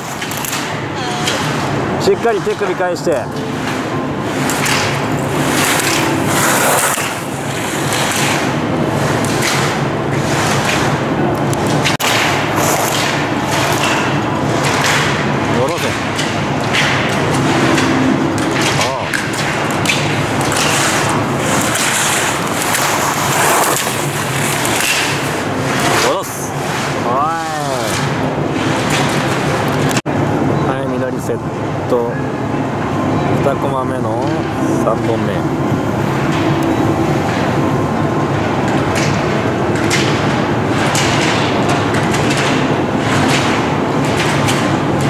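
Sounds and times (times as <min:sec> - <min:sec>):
loud background noise: 0:00.0 - 0:45.0
skis scraping on snow: 0:05.5 - 0:08.2, 0:20.7 - 0:24.8
plastic poles being struck: 0:11.6 - 0:30.0.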